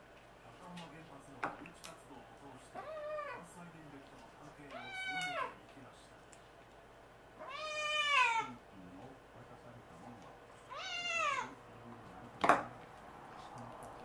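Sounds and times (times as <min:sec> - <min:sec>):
kitten meowing: 0:04.7 - 0:05.6, 0:07.4 - 0:08.5, 0:10.7 - 0:11.6.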